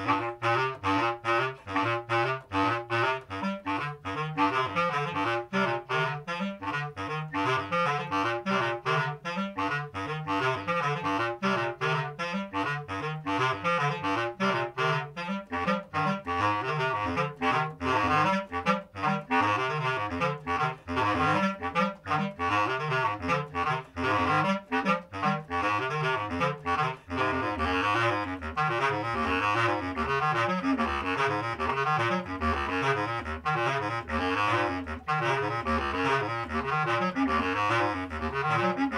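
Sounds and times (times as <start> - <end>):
bass clarinets duet: 0.0 - 38.9.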